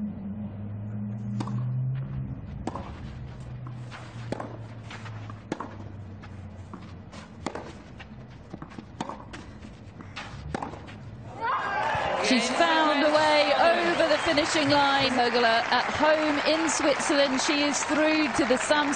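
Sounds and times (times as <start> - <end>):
racquet hitting tennis ball: 1.3 - 1.7, 2.5 - 6.0, 6.7 - 7.9, 8.5 - 11.0.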